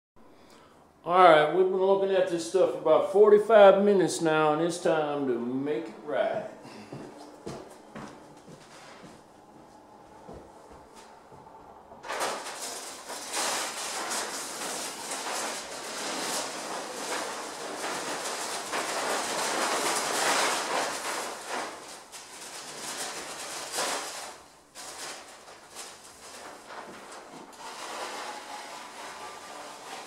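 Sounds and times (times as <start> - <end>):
knife scraping drywall texture: 12.1 - 30.0.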